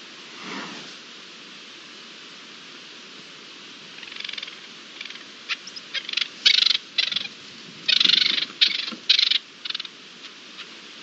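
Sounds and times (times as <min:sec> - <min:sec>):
steady outdoor hiss: 0:00.0 - 0:11.0
partridge rasping calls: 0:03.9 - 0:10.8.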